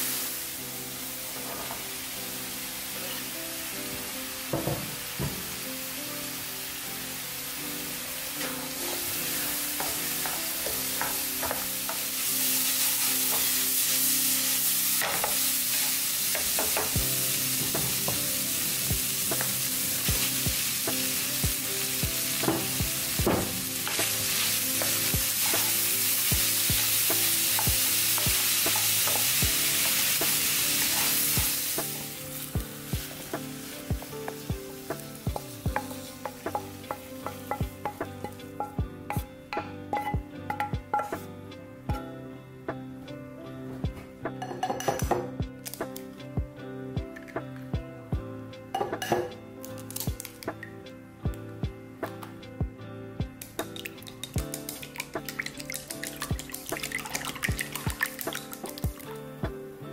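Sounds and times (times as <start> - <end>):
food sizzling in a frying pan: 0.0 - 39.2, 53.4 - 59.2
wooden spatula knocking pan: 9.8 - 12.1, 22.4 - 25.7, 35.3 - 41.2.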